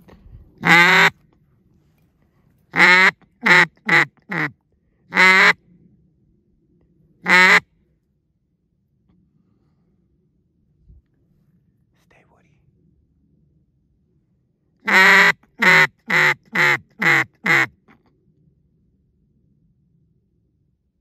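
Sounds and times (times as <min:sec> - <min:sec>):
duck call quacks: 0:00.6 - 0:01.2, 0:02.7 - 0:04.5, 0:05.1 - 0:05.6, 0:07.2 - 0:07.6, 0:14.8 - 0:17.8.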